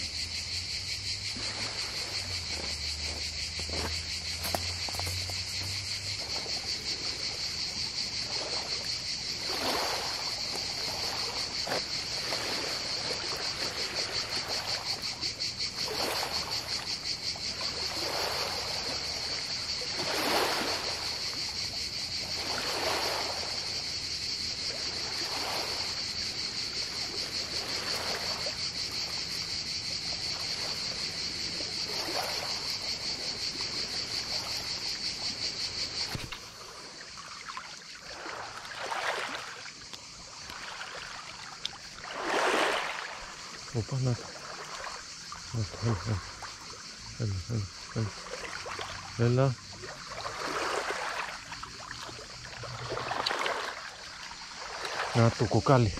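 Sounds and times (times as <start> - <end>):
crickets chirping: 0.0 - 55.9
waves washing onto pebbles: 1.2 - 21.4, 22.3 - 23.9, 30.5 - 45.1, 48.0 - 55.9.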